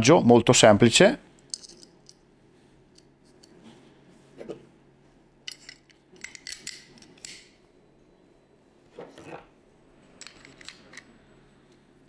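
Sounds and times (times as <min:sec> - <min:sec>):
pistol parts clicking and sliding: 0:05.5 - 0:07.6, 0:10.2 - 0:11.1.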